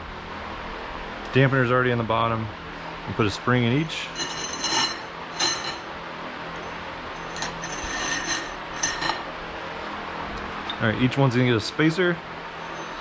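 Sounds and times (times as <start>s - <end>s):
metal springs scraping in tubes: 3.9s - 5.9s, 6.5s - 9.3s, 12.6s - 13.0s.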